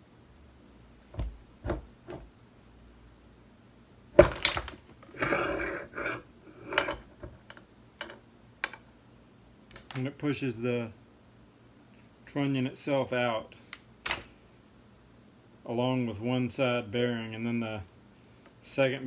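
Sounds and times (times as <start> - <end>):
small metal parts clattering: 4.2 - 5.1.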